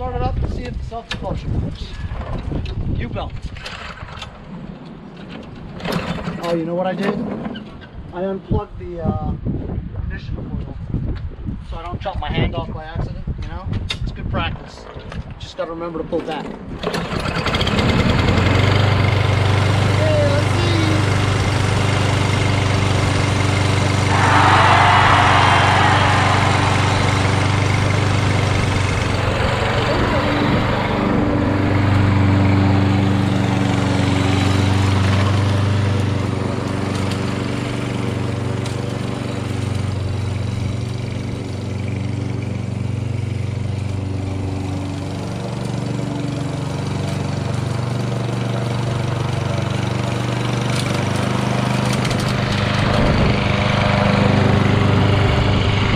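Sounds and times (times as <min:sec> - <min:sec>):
lawn mower engine running: 0:16.8 - 0:55.9
brief rushing noise: 0:24.1 - 0:28.8.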